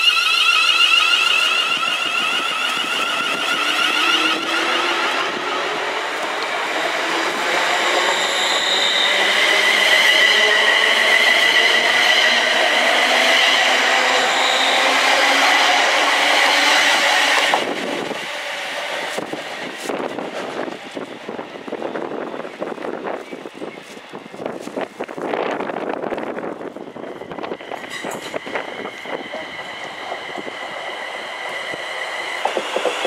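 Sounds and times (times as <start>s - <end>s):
electric train motors whining: 0.0s - 21.4s
wheels rumbling on rail: 0.0s - 33.0s.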